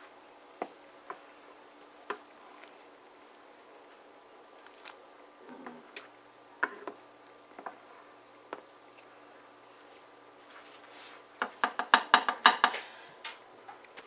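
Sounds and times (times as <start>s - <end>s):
soft squelches of stirring: 0.0s - 12.7s
spoon knocking against pot: 11.4s - 12.8s.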